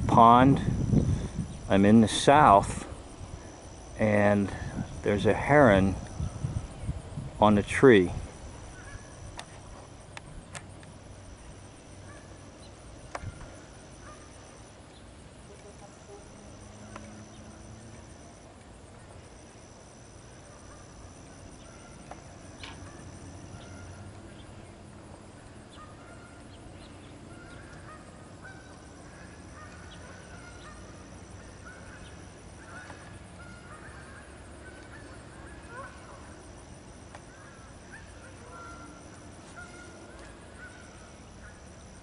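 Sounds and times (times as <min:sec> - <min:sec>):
high-pitched insect drone: 0:11.0 - 0:42.0
short bird calls: 0:37.3 - 0:41.6.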